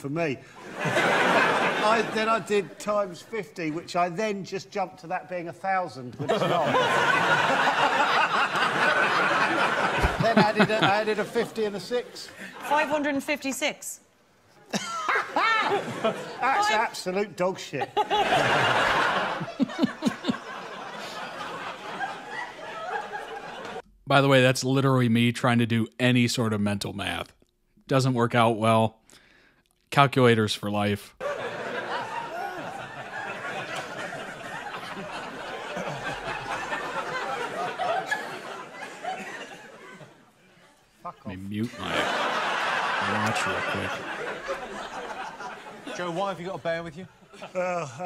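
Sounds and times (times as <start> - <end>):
studio audience laughing: 0.4 - 2.8, 6.1 - 13.1, 14.7 - 17.0, 17.6 - 23.9, 31.2 - 40.8, 41.6 - 48.0.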